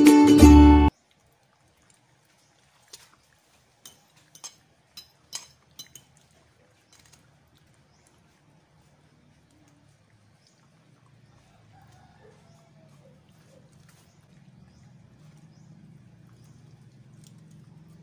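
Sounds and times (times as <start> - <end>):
ukulele music: 0.0 - 0.9
dogs eating clicks and taps: 3.8 - 8.3, 13.6 - 18.0.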